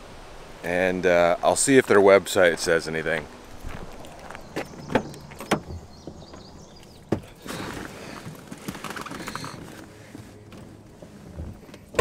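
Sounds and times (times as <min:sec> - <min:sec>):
rustling: 0:01.5 - 0:12.0
car door clicks and knocks: 0:04.9 - 0:06.5.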